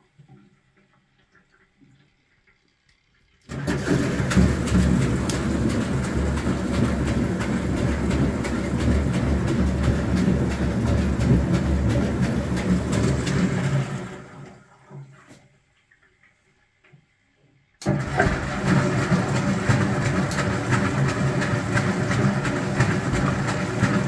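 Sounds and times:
washing machine motor humming: 3.5s - 15.0s, 17.8s - 24.0s.

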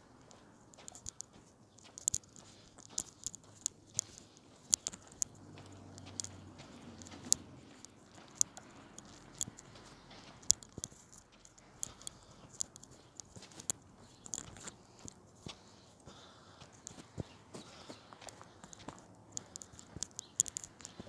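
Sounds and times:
sharp clicks: 0.2s - 15.6s, 16.7s - 21.0s.

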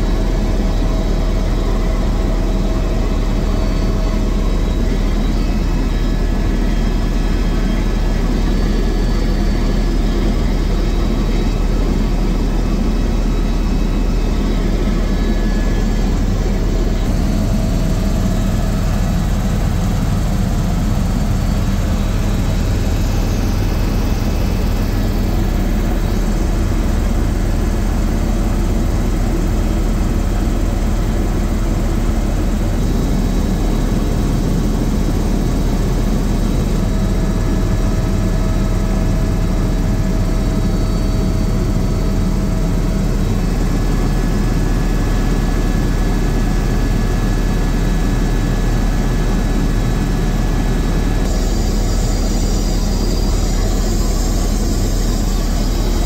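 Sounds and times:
helicopter rotor and engine drone: 0.0s - 56.0s.

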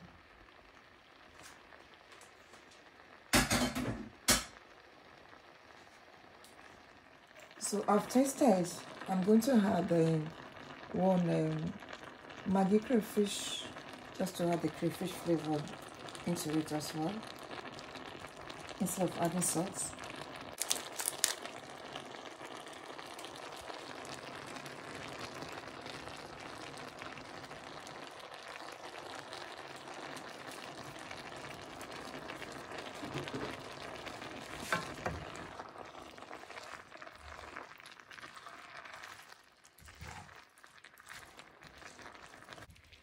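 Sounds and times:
food sizzling in a frying pan: 0.0s - 43.0s
wooden spatula stirring a pan: 34.4s - 43.0s.

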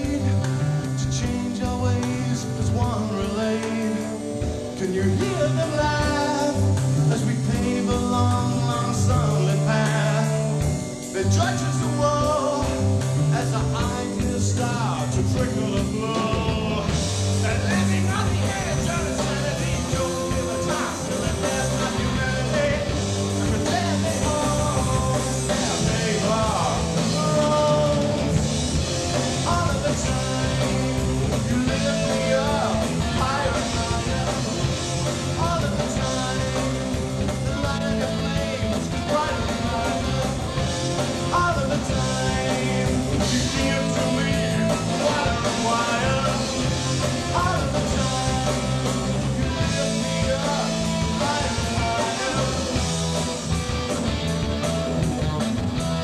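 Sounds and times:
man singing: 0.0s - 53.2s
live rock band playing: 0.0s - 56.0s.

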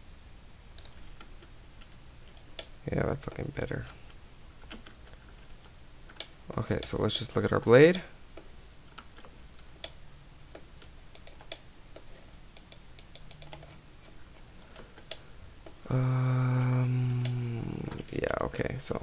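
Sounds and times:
mouse clicks: 0.8s - 2.7s, 8.4s - 13.7s
loud steady humming tone: 15.8s - 18.0s.

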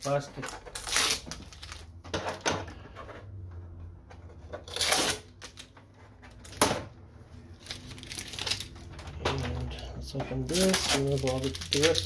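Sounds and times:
packing tape tearing: 0.0s - 1.9s, 4.6s - 5.7s, 7.6s - 9.8s, 10.4s - 12.0s.

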